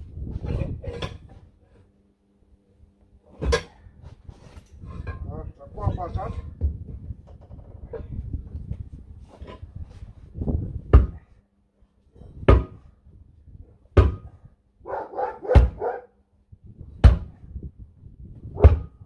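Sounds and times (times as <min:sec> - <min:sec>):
dog barking: 0:14.9 - 0:16.2.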